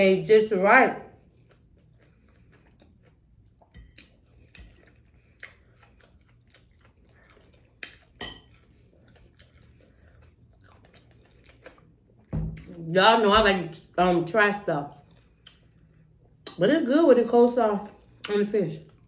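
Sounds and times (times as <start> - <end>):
soft chewing: 1.0 - 12.9, 14.6 - 16.6, 17.7 - 19.0
fork clinking against a plate: 3.7 - 4.9, 8.0 - 8.7.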